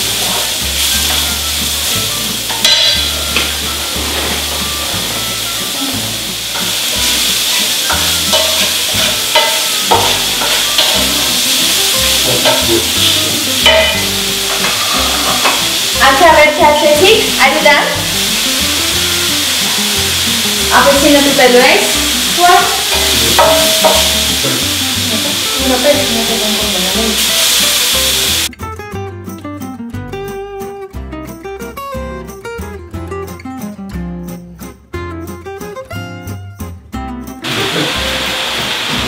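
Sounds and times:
stirring in pan: 0:00.0 - 0:16.2, 0:17.4 - 0:24.4
onion frying in oil: 0:00.0 - 0:28.5, 0:37.4 - 0:39.0.

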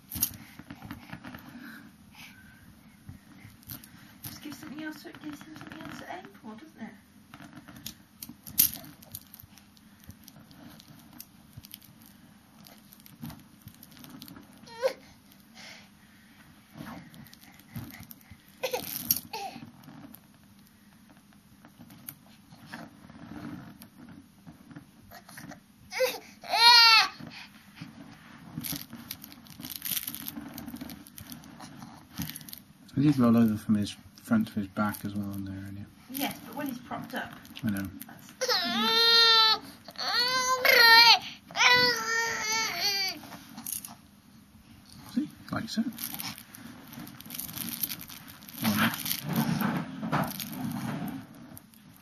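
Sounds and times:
fabric rustling and crinkling: 0:07.3 - 0:15.5, 0:26.6 - 0:33.7, 0:34.3 - 0:44.1, 0:44.8 - 0:52.0
plastic beads clicking and rattling: 0:08.2 - 0:14.5, 0:28.6 - 0:31.5, 0:32.2 - 0:32.6, 0:36.1 - 0:37.9, 0:45.9 - 0:49.4, 0:50.2 - 0:50.8
baby squealing: 0:38.4 - 0:43.2.

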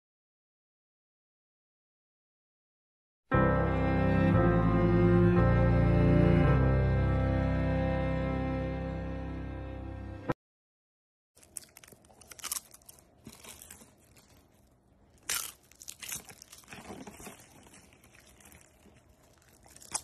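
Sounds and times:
rustling and crunching: 0:11.4 - 0:20.0.

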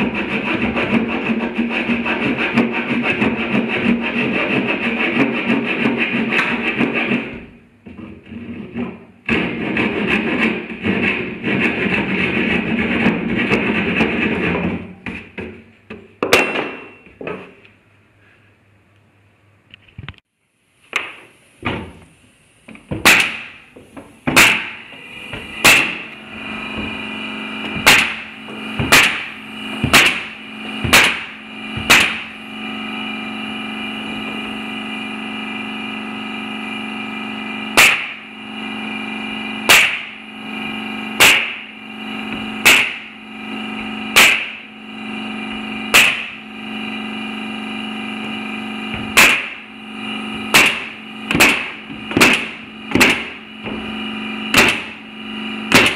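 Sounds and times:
nail gun firing into plywood: 0:16.2 - 0:16.9, 0:23.0 - 0:23.6, 0:24.3 - 0:24.8, 0:25.6 - 0:26.1, 0:27.8 - 0:32.3, 0:37.8 - 0:38.2, 0:39.6 - 0:40.2, 0:41.2 - 0:41.7, 0:42.6 - 0:43.1, 0:44.1 - 0:44.6, 0:45.9 - 0:46.4, 0:49.0 - 0:49.6, 0:50.5 - 0:53.4, 0:54.5 - 0:55.0, 0:55.7 - 0:55.9
steady drone: 0:24.3 - 0:55.9.

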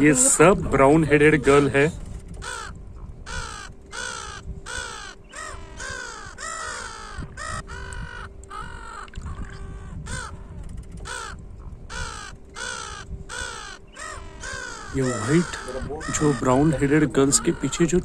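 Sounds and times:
faint steady hum: 0:00.0 - 0:18.0
gulls calling: 0:00.0 - 0:18.0.

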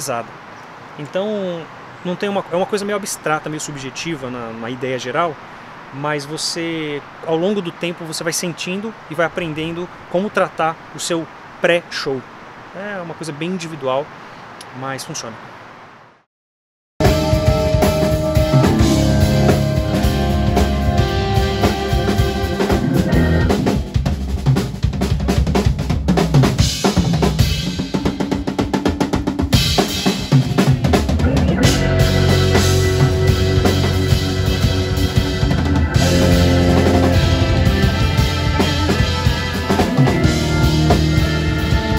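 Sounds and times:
drums: 0:17.0 - 0:41.9
jazz fusion band playing: 0:17.0 - 0:41.9.

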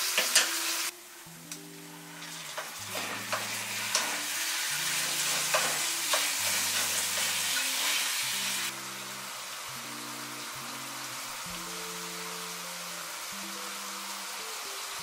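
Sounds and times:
meat and onions sizzling in pan: 0:00.0 - 0:15.0
soft background music: 0:00.0 - 0:15.0
utensil clicking against pan: 0:02.5 - 0:04.2, 0:05.3 - 0:07.3.

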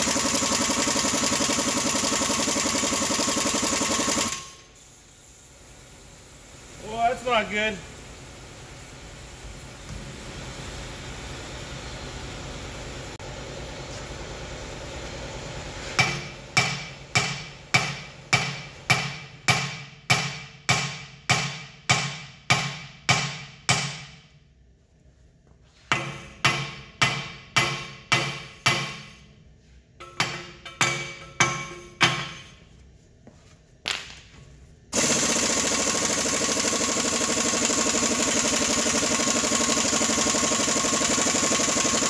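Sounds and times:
hammer striking metal: 0:16.0 - 0:24.2, 0:25.9 - 0:29.2, 0:30.0 - 0:32.6.

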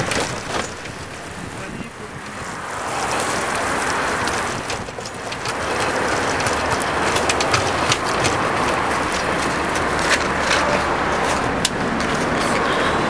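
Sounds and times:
tyre hiss on wet asphalt: 0:02.3 - 0:04.3
clicks and rattles: 0:03.5 - 0:12.8.

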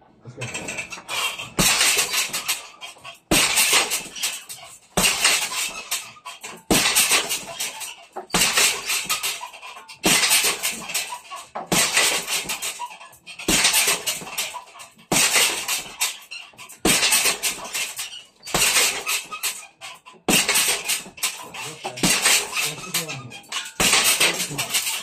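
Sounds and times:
metal chains rattling and squeaking: 0:00.2 - 0:25.0
punches hitting heavy bag: 0:01.6 - 0:02.6, 0:03.3 - 0:04.3, 0:05.0 - 0:06.0, 0:06.7 - 0:07.7, 0:08.3 - 0:09.4, 0:10.0 - 0:11.0, 0:11.6 - 0:12.8, 0:13.4 - 0:14.5, 0:15.1 - 0:16.1, 0:16.8 - 0:17.9, 0:18.5 - 0:19.3, 0:20.3 - 0:21.4, 0:22.0 - 0:23.0, 0:23.8 - 0:25.0.

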